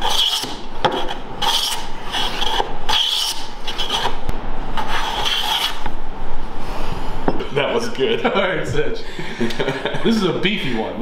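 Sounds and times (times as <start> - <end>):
hand plane cutting wood: 0.0 - 4.2, 4.8 - 5.9.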